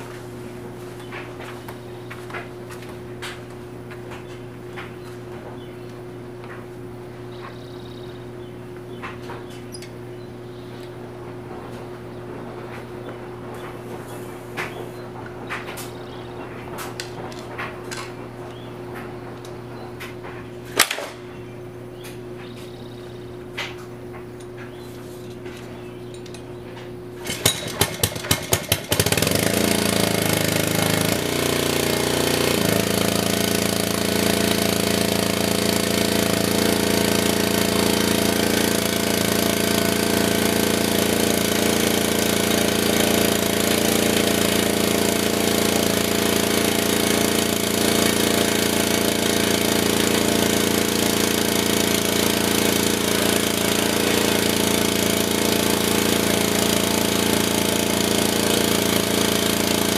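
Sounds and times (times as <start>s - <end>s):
small engine pull-started and running: 27.1s - 59.9s.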